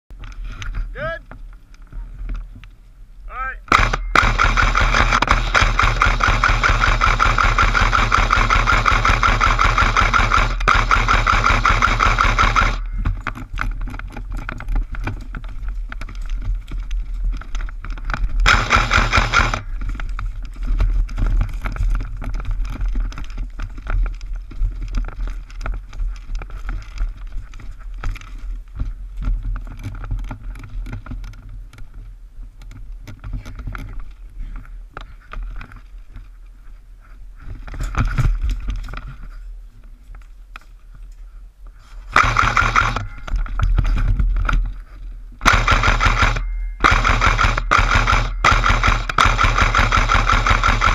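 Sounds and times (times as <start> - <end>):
knocks and rustling of movement: 0.1 - 50.9
airsoft rifle automatic fire: 3.7 - 13.0, 18.4 - 19.7, 42.1 - 43.4, 45.4 - 50.9.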